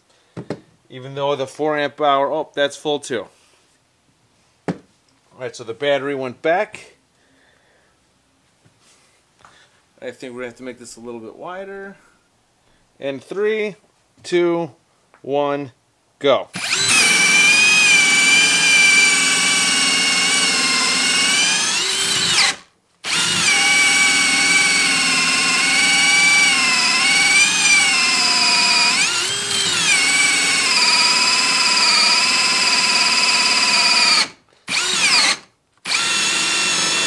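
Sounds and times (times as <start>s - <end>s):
drill motor whine: 16.6s - 37.0s.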